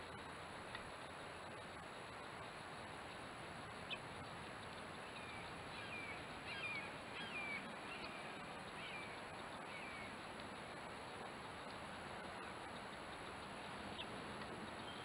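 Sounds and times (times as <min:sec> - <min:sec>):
steady hiss: 0:00.0 - 0:15.0
bird calling: 0:03.8 - 0:10.7, 0:13.2 - 0:15.0.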